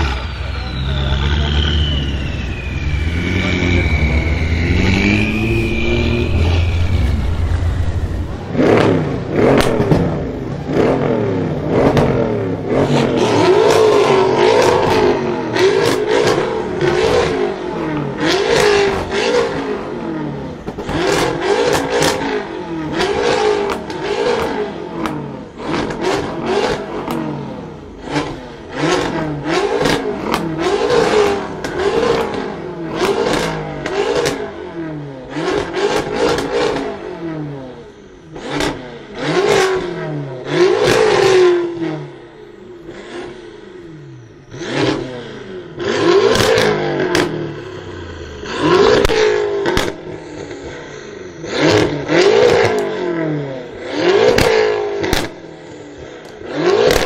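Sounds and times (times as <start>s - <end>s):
car engine revving: 0.0s - 57.0s
exhaust pops and bangs: 8.7s - 10.2s, 11.7s - 12.2s, 46.2s - 47.4s, 48.9s - 50.0s, 54.2s - 55.4s, 56.8s - 57.0s.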